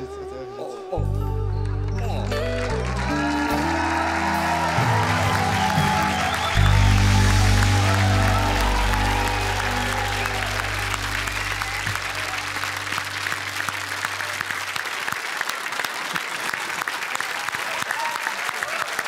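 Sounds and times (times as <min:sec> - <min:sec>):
band chord ringing out: 0:01.1 - 0:14.8
audience applauding: 0:01.6 - 0:19.0.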